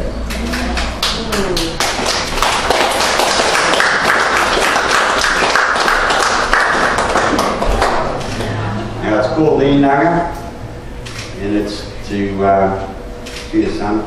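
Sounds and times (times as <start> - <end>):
audience applauding: 0.5 - 8.6.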